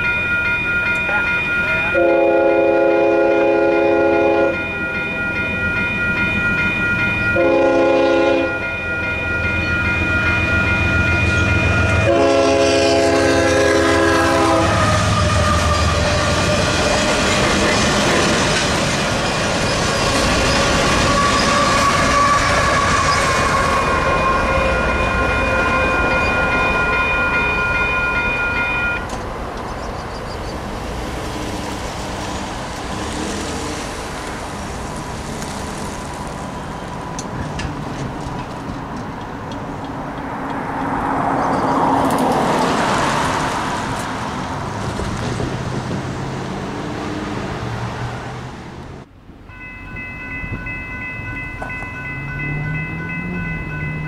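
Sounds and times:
crossing bell ringing: 0.0 - 30.6, 40.1 - 42.9, 49.4 - 54.0
train wheels clacking on rails: 3.7 - 35.9, 36.9 - 46.1
road vehicle passing: 7.6 - 49.2, 50.8 - 54.0.

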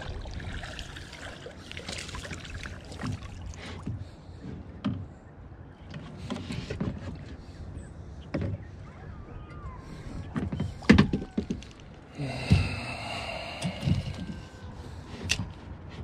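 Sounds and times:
water lapping against kayak hull: 0.0 - 4.8, 9.8 - 16.0.

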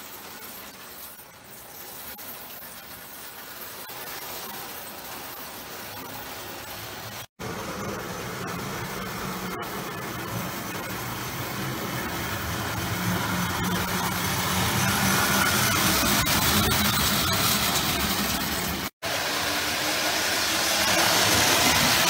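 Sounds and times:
toy train motor hum: 7.6 - 22.0
wheels rattling on track: 7.8 - 22.0.

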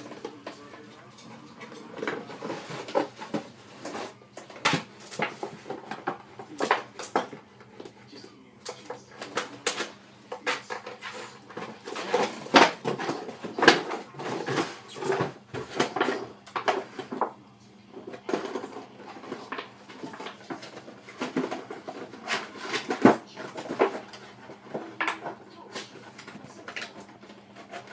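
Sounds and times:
dog chewing plastic bottle: 8.6 - 27.9.

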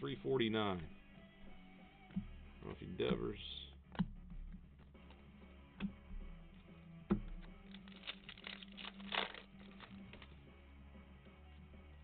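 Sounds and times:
foil wrapper crinkling and tearing: 7.6 - 10.3.

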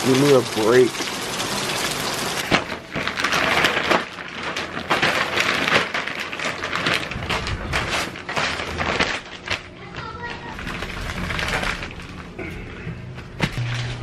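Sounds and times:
steady rain hiss: 0.0 - 2.4
plastic sheeting crinkling: 2.4 - 12.4.

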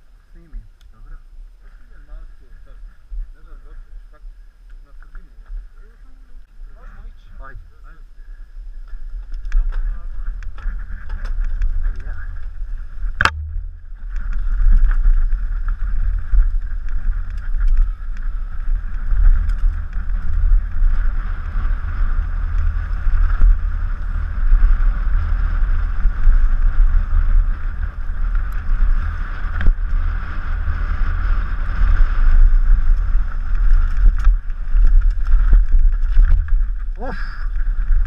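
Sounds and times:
wind buffeting microphone: 0.0 - 38.0
bike knocking on roots and rocks: 8.9 - 38.0.

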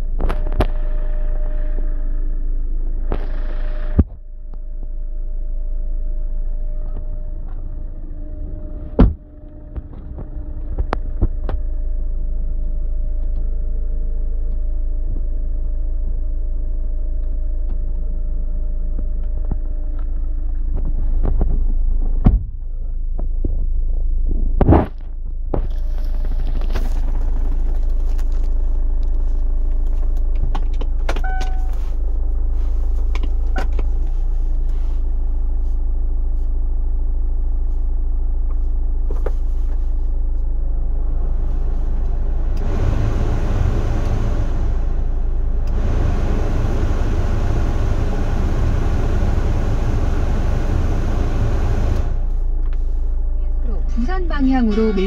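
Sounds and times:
car engine idling: 25.8 - 55.0.

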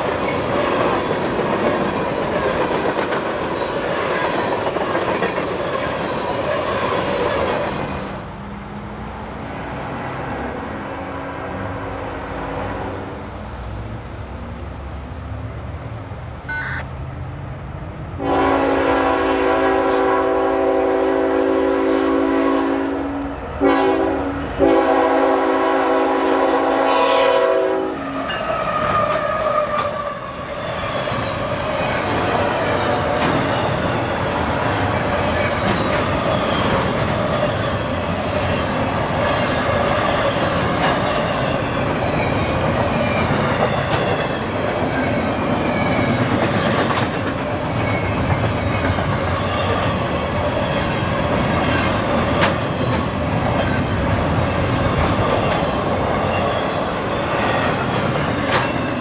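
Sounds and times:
train wheels clattering over rail joints: 0.0 - 8.0, 30.7 - 59.0
locomotive air horn blast: 16.5 - 16.8, 18.2 - 28.2.

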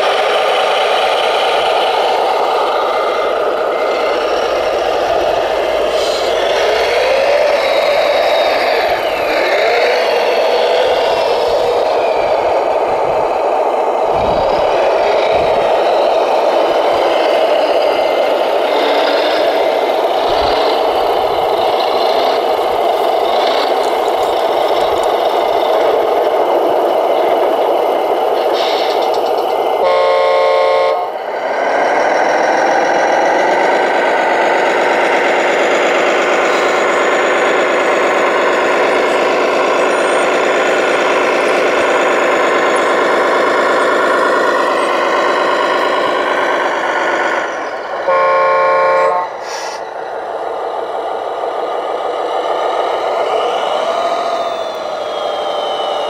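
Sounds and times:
model wheel loader running: 0.0 - 30.4, 31.0 - 48.2
truck engine revving: 0.0 - 56.0
truck air horn blast: 29.8 - 31.2, 48.0 - 49.8.

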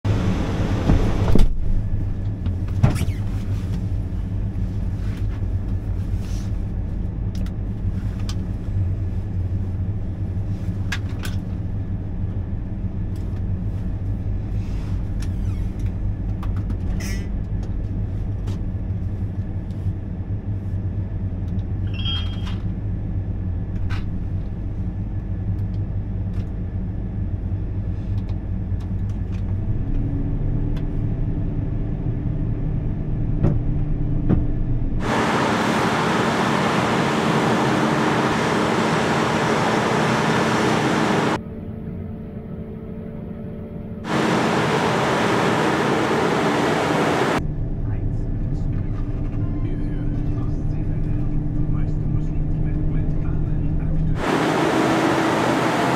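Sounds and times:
engine deep rumble: 0.0 - 55.9
steady hum: 34.8 - 55.9.

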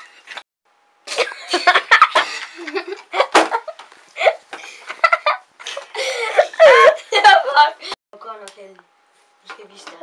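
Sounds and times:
boys laughing: 1.1 - 8.0.

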